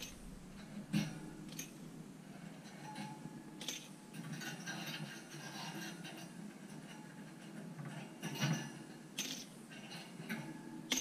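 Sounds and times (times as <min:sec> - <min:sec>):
metal hooks clicking on wire rack: 0:00.0 - 0:01.8, 0:02.6 - 0:07.0, 0:08.2 - 0:11.0.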